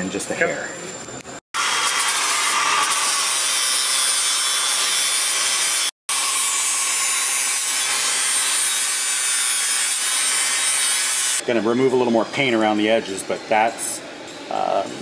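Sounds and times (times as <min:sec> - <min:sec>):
angle grinder grinding metal: 0:01.6 - 0:11.4.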